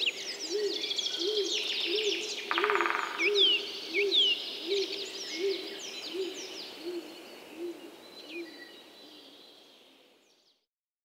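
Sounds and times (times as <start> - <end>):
songbirds chirping and whistling: 0.0 - 10.5
low bird hoots: 0.5 - 9.2.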